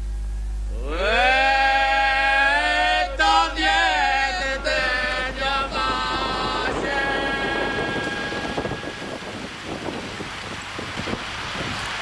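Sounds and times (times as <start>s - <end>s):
person chanting: 0.7s - 9.2s.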